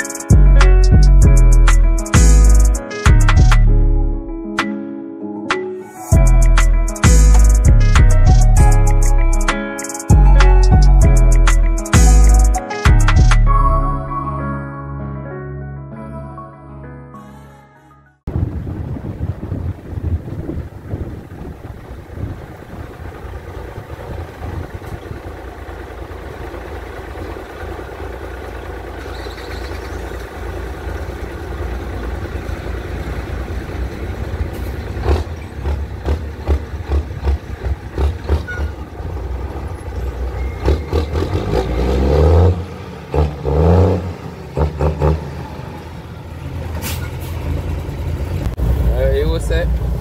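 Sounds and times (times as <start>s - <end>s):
diesel truck engine running: 18.3s - 50.0s
truck clattering over rough ground: 20.7s - 41.9s
engine revving: 25.6s - 49.3s.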